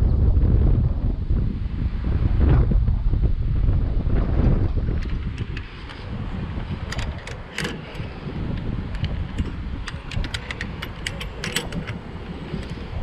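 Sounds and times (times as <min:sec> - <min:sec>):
wind rumbling on microphone: 0:00.0 - 0:13.0
light metallic clicks and clinks: 0:06.9 - 0:13.0.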